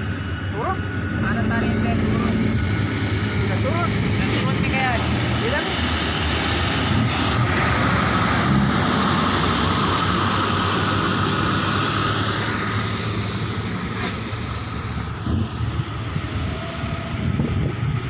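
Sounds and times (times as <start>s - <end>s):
dump truck diesel engine: 0.0s - 18.0s
tyres on wet road: 0.0s - 18.0s.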